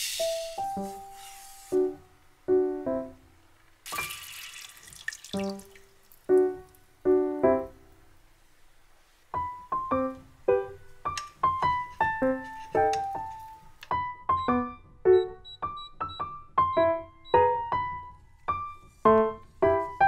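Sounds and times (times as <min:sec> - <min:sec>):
light piano music: 0:00.0 - 0:20.0
milk splashing into frying pan: 0:03.8 - 0:06.4.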